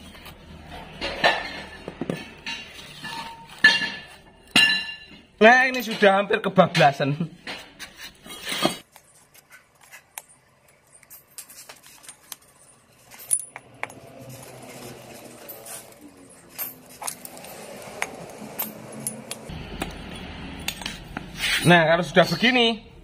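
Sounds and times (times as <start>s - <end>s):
metal clatter: 0.0s - 6.1s, 10.2s - 22.6s
blade scraping rubber: 20.9s - 21.7s.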